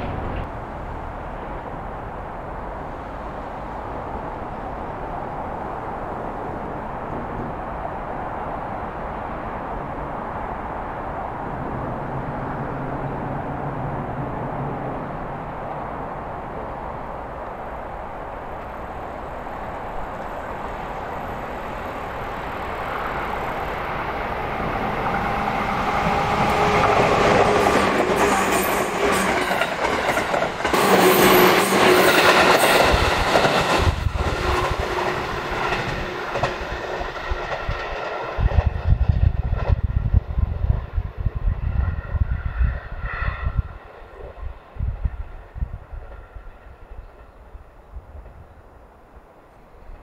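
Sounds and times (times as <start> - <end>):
train passing: 0.0 - 50.0
gusty low rumble: 32.8 - 36.1, 37.2 - 47.0.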